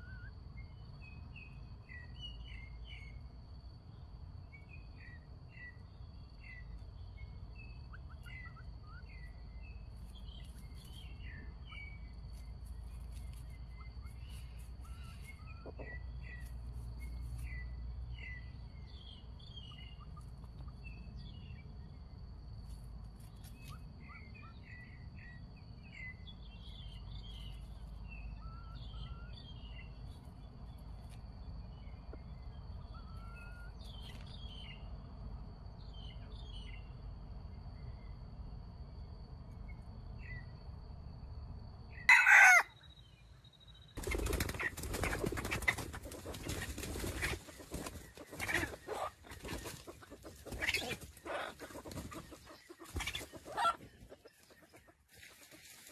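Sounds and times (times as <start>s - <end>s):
small birds chirping: 0.0s - 35.0s, 42.0s - 55.9s
jungle chicken call: 42.1s - 42.7s, 50.0s - 53.8s
wing flapping and scuffling: 44.0s - 55.9s.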